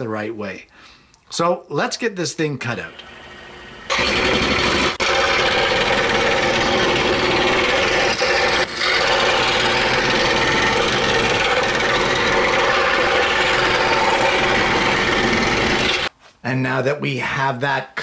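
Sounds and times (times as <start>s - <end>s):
scroll saw cutting wood: 2.7s - 16.1s.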